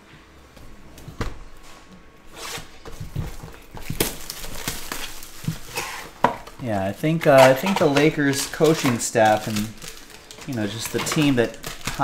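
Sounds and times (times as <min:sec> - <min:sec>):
plastic wrapper rustling: 0:02.8 - 0:12.0.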